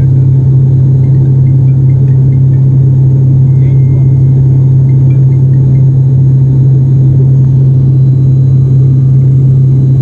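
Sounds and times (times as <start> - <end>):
propeller plane cabin drone: 0.0 - 10.0.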